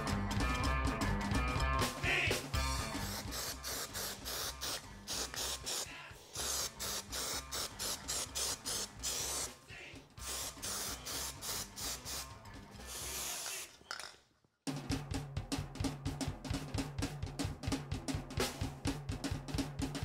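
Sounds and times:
music with quick steady beat: 0:00.0 - 0:13.6, 0:14.7 - 0:20.0
spray paint hissing: 0:02.8 - 0:09.6, 0:10.2 - 0:13.8.

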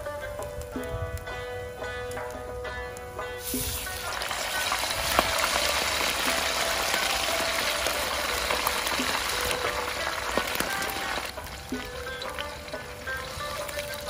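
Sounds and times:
meat sizzling in hot oil: 0:03.4 - 0:14.0.

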